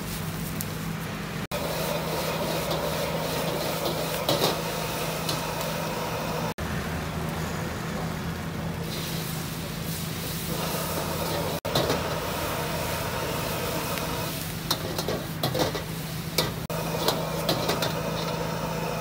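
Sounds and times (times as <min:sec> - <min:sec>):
food frying hiss: 0:00.0 - 0:19.0
gas burner running: 0:00.0 - 0:19.0
metal ladle scraping a wok: 0:01.6 - 0:05.4.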